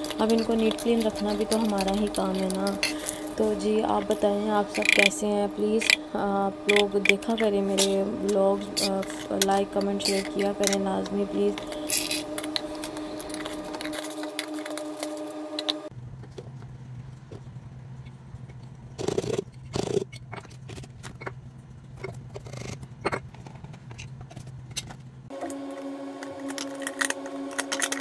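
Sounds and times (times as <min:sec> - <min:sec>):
jars clicking and scraping on counter: 0:00.0 - 0:03.4
steady layered tone: 0:00.0 - 0:15.9
low steady hum: 0:00.0 - 0:28.0.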